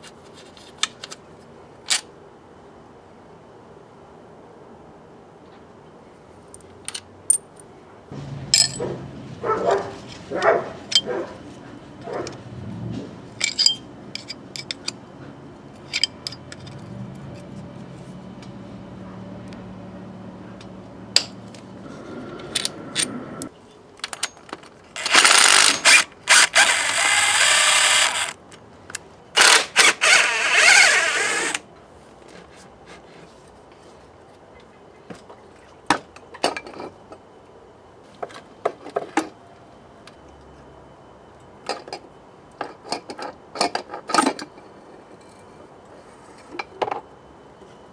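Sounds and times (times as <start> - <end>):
hand tools clinking on metal: 8.5 - 9.0, 10.4 - 11.2, 13.4 - 15.0, 15.8 - 16.8
cordless drill spinning bolts: 25.0 - 28.4, 29.4 - 31.6.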